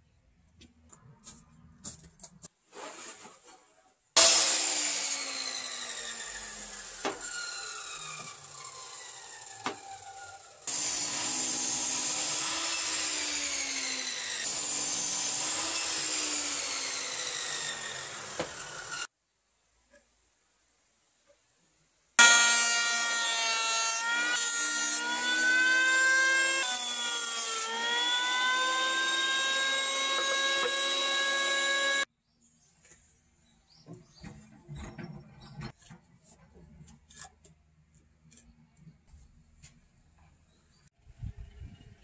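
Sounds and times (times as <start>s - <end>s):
miter saw cutting wood: 4.2s - 19.1s, 22.2s - 32.1s.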